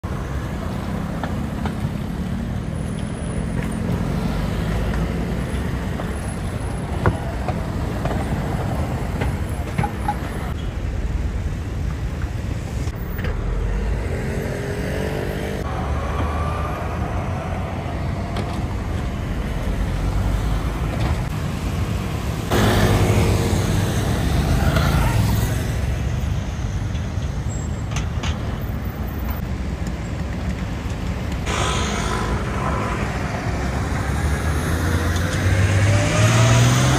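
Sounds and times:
city road traffic rumble: 0.0 - 36.9
vehicle passing close: 31.5 - 36.9.

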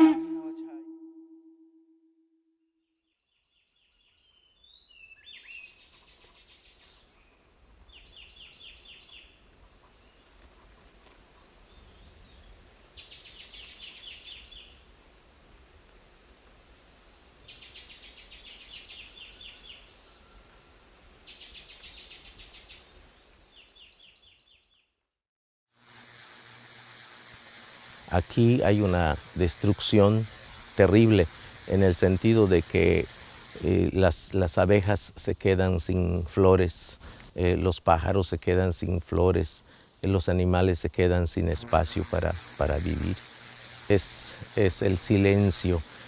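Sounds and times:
rapid high pulsing trill: 41.5 - 46.0.

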